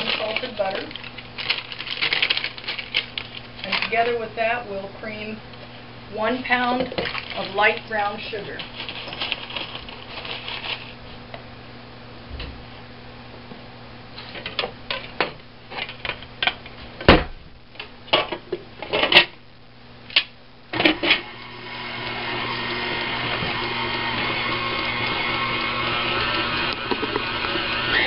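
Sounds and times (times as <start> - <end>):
packaging crinkling: 0.0 - 4.1, 8.6 - 11.0.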